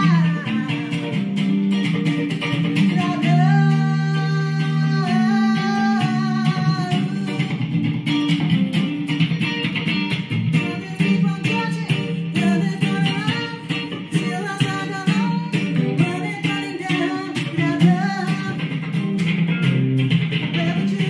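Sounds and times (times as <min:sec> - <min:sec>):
woman singing: 0:00.0 - 0:01.5, 0:02.7 - 0:07.7, 0:10.5 - 0:19.1, 0:20.4 - 0:21.0
electric guitar strumming: 0:00.0 - 0:21.0.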